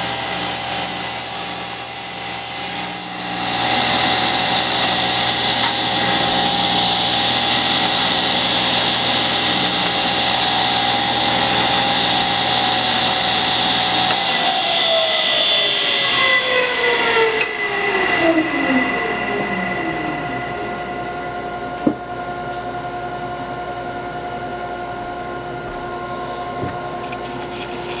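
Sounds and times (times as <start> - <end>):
table saw winding down: 0.0 - 21.9
steady machine hum: 0.0 - 28.0.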